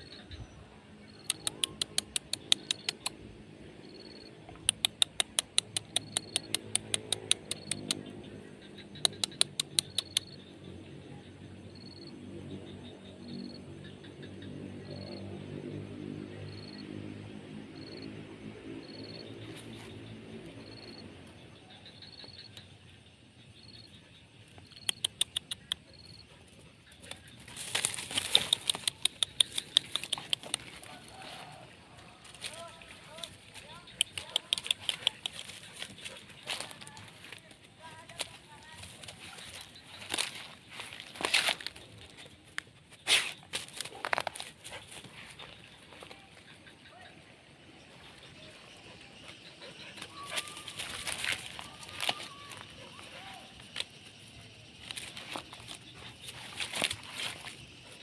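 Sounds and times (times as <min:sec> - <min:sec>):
dry grass rustling and crackling: 0:27.5 - 0:34.4, 0:35.8 - 0:42.2, 0:50.8 - 0:53.7.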